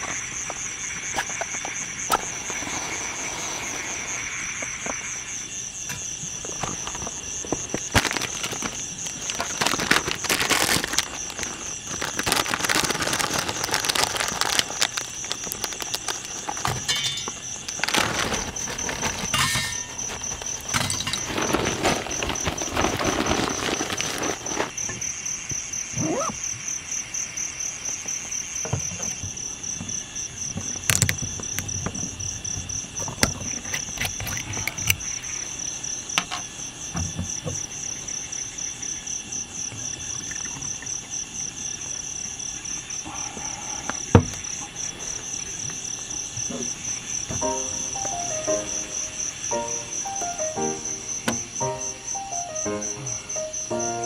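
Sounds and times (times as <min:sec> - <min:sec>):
crickets chirping: 0:00.0 - 0:54.0
paper and kindling rustling: 0:06.3 - 0:24.8.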